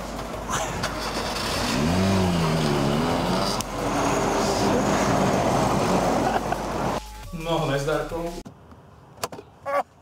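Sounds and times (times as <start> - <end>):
heavy lorry passing: 0.0 - 7.0
vehicle engine rising in pitch: 1.2 - 7.0.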